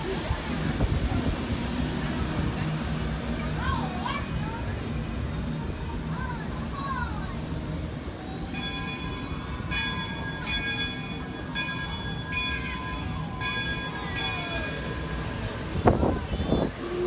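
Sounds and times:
bell ringing: 8.5 - 15.4.

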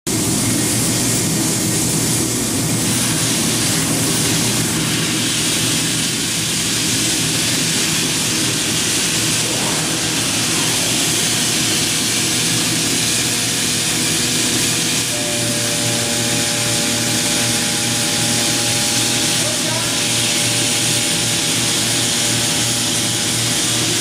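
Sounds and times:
spindle and dust extraction hiss: 0.9 - 24.0
router machine roaring: 8.0 - 24.0
steady high tone: 9.3 - 13.1.

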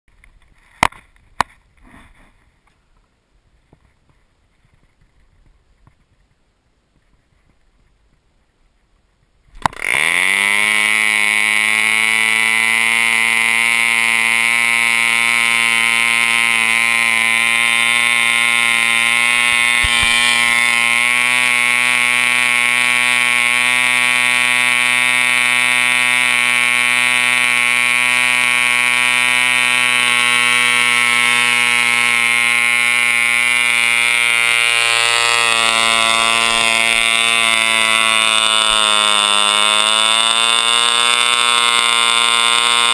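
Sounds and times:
model airplane engine buzzing: 9.6 - 42.9.

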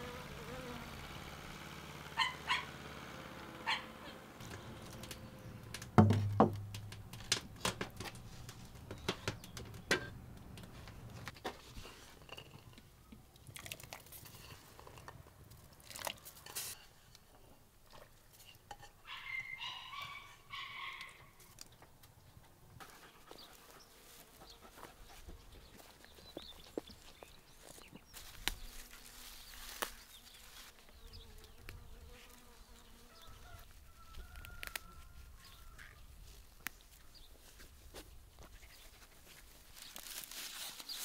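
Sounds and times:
earthenware pots knocking and clinking: 5.9 - 8.1.

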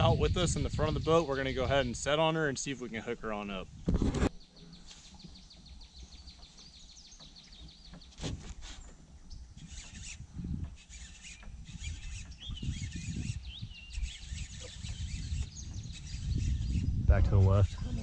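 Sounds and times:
birds chirping and calling: 0.0 - 18.0.

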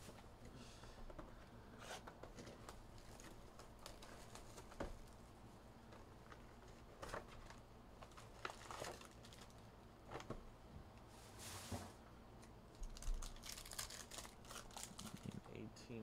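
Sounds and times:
papery rustle: 5.9 - 10.4, 12.8 - 15.5.

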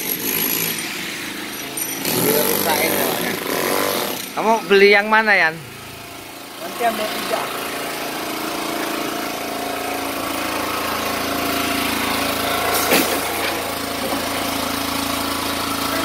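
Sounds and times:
generator running: 0.0 - 16.0.

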